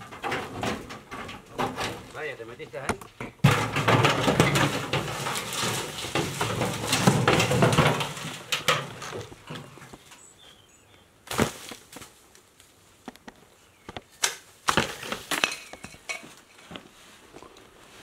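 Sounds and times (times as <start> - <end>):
oil drum rolling over dirt: 0.0 - 10.3.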